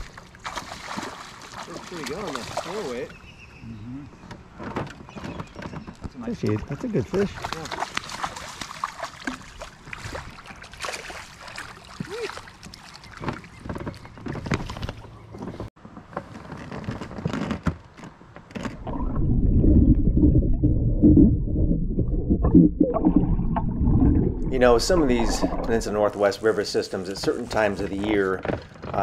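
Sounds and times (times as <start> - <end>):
fish splashing water: 0.0 - 3.1, 7.1 - 15.0
underwater rumble: 18.7 - 26.3.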